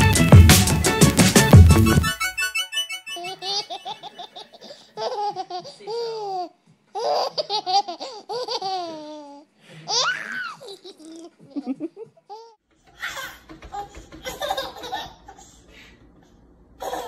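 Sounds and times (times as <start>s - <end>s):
baby squealing: 2.0s - 4.0s, 8.4s - 10.7s
baby giggling: 2.0s - 15.6s, 16.8s - 17.0s.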